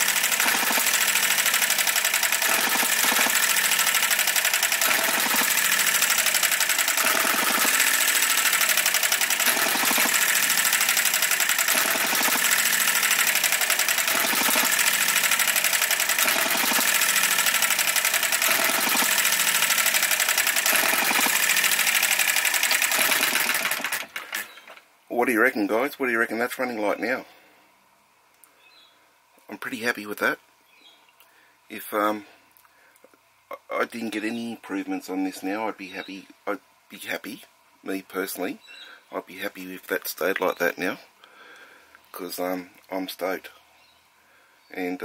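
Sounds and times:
model engine clattering: 0.0s - 24.8s.

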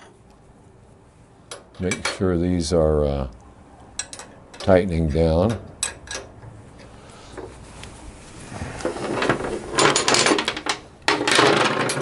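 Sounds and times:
metal tools clattering and scraping: 8.9s - 12.0s.

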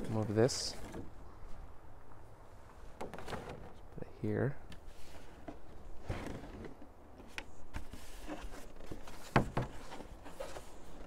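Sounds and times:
plastic tray scraping and rustling: 3.0s - 3.8s, 4.8s - 11.0s.

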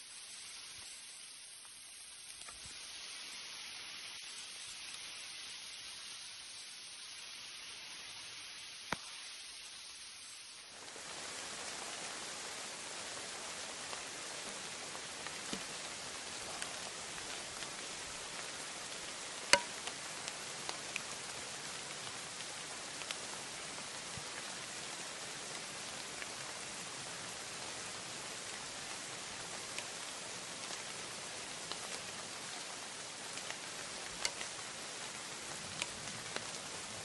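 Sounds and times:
rain falling on leaves: 0.0s - 37.0s
drops ticking close by: 19.5s - 19.9s.

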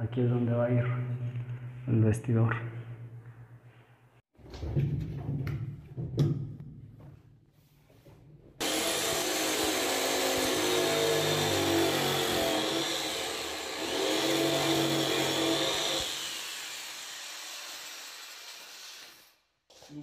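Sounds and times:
jigsaw cutting wood: 8.6s - 19.1s.

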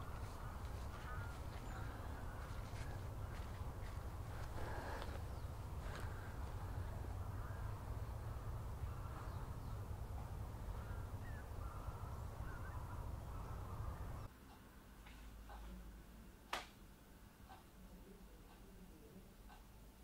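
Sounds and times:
faint bird calls: 0.0s - 14.3s
low rumble and hiss: 0.0s - 20.0s.

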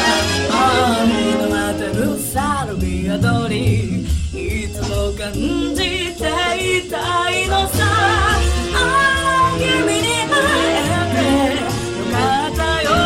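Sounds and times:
women singing wavering notes: 0.4s - 13.0s
electropop dance beat: 0.5s - 9.6s.

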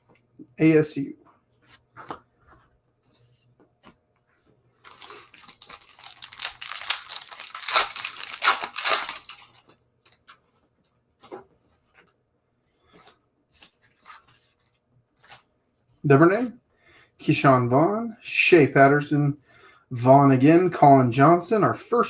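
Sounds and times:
foil wrapper tearing and crinkling: 4.9s - 9.6s.

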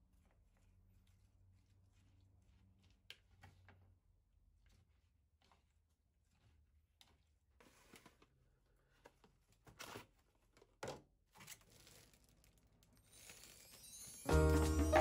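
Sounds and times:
cling film tearing and rustling: 11.4s - 14.0s
plastic bag crinkling: 11.6s - 14.3s.

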